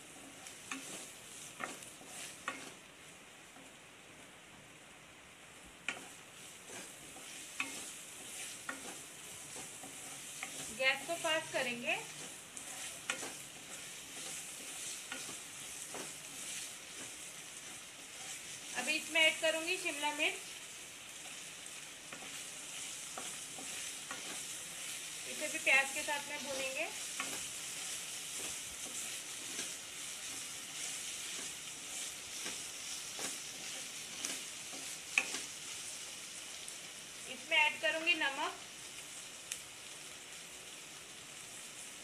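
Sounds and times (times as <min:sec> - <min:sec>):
spatula scraping pan: 0:00.0 - 0:02.8, 0:05.9 - 0:19.1, 0:21.2 - 0:36.0
onions sizzling in oil: 0:00.0 - 0:42.0.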